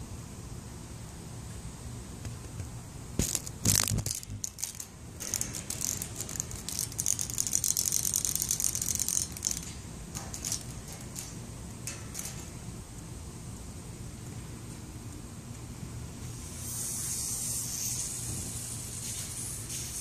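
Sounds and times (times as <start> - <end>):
cicada rattling buzz: 3.2 - 11.4, 16.3 - 20.0.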